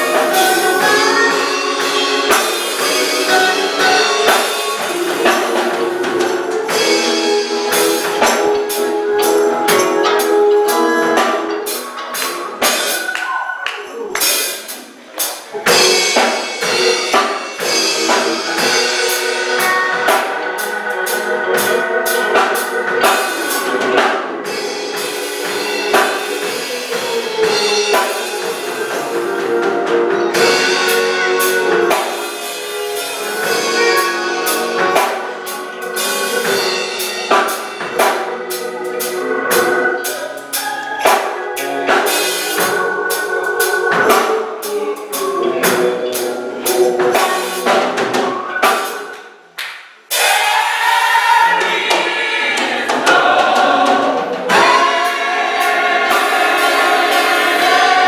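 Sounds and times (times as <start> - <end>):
drum kit playing: 0.0 - 58.0
gospel choir and band: 0.0 - 58.0.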